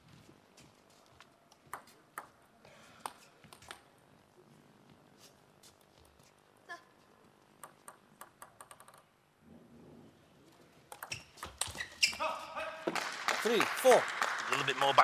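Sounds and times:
table tennis ball bouncing: 0:01.6 - 0:02.4, 0:07.6 - 0:09.1, 0:10.9 - 0:11.8.

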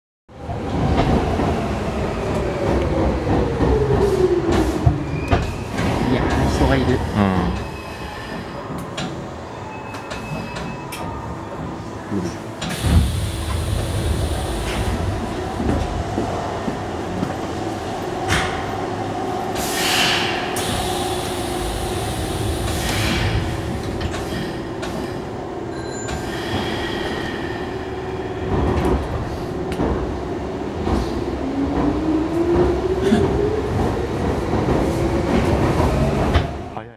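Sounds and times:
sliding doors closing with hiss: 0:12.6 - 0:15.1, 0:19.5 - 0:25.2.

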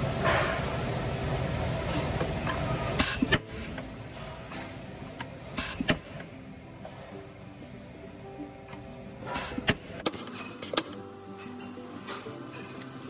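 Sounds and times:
press machinery running: 0:00.0 - 0:13.0
short hiss: 0:05.6 - 0:06.2.

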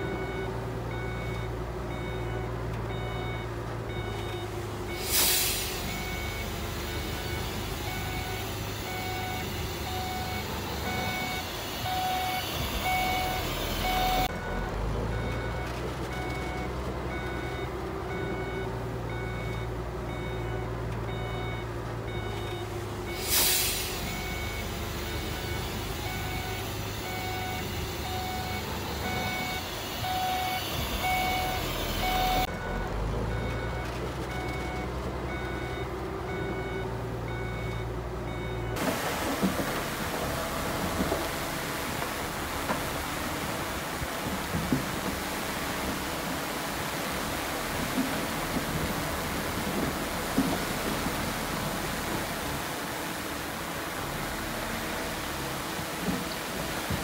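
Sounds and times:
reversing alarm beeping: 0:00.0 - 0:38.8
diesel engine rumble: 0:00.0 - 0:57.0
short sharp hiss: 0:23.2 - 0:24.1.

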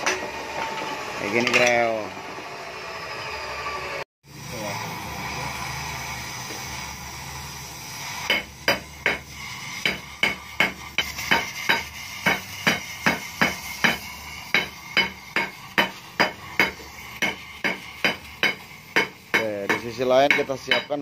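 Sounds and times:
gas torch hissing: 0:00.0 - 0:21.0.

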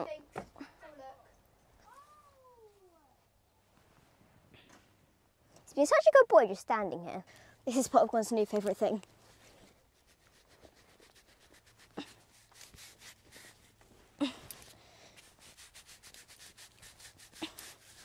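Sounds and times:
brush rubbing over pony: 0:07.8 - 0:18.0.

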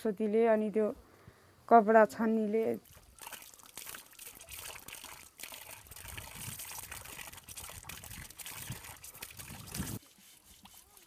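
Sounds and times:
water pouring over hands: 0:02.8 - 0:10.0.

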